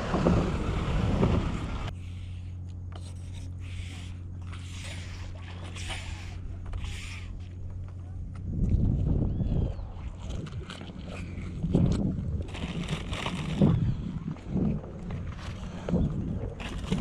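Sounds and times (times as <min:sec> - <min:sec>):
wind buffeting microphone: 0:00.0 - 0:01.9, 0:08.2 - 0:17.0
steady low hum: 0:00.0 - 0:17.0.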